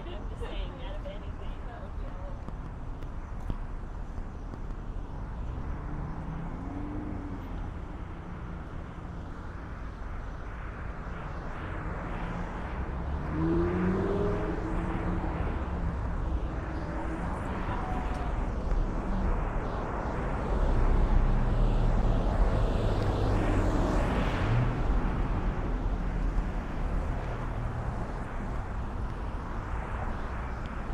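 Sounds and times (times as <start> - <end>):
traffic rumble: 0.0 - 30.9
vehicle engine accelerating: 5.1 - 9.4, 12.1 - 30.9.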